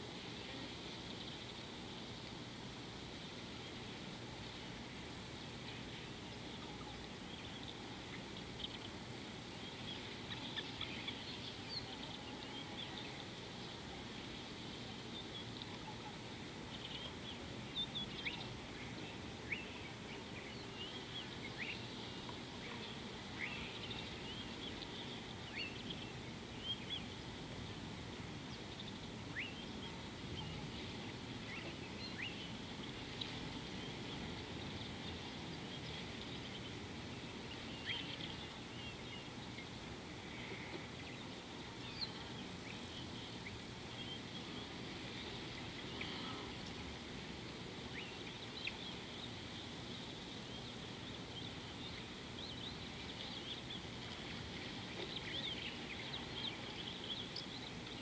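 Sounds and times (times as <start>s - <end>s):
low background noise: 0.0s - 58.0s
birds chirping: 28.2s - 58.0s.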